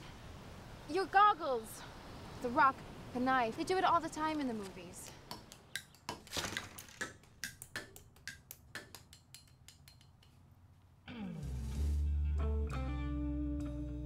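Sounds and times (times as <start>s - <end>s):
guitar music: 11.1s - 14.0s.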